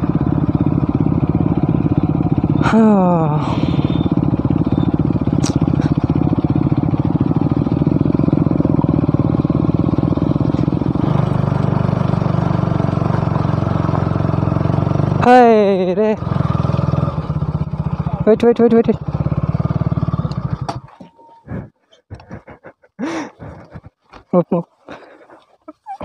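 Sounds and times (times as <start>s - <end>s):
motorcycle engine running: 0.0s - 21.7s
voice calling: 2.4s - 6.2s, 23.3s - 26.0s.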